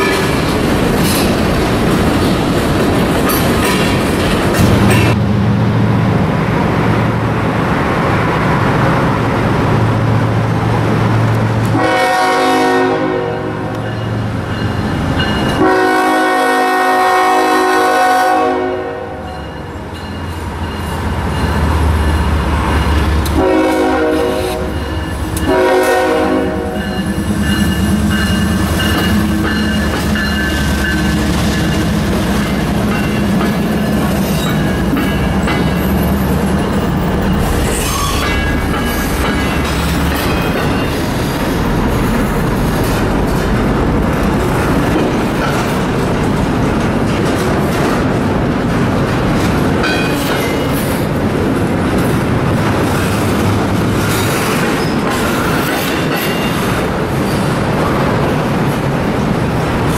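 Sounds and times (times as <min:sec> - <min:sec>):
train wheels clickety-clack: 0:00.0 - 0:05.2, 0:19.2 - 0:59.9
locomotive air horn blasts: 0:11.7 - 0:13.7, 0:15.6 - 0:19.3, 0:23.3 - 0:24.8, 0:25.4 - 0:26.8.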